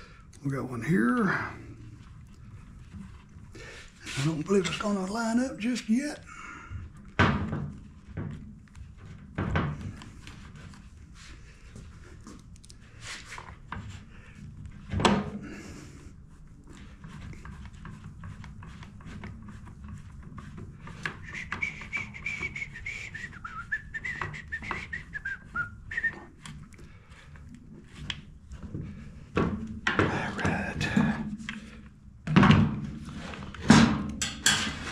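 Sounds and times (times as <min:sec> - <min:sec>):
person whistling a tune: 0:21.2 - 0:26.3.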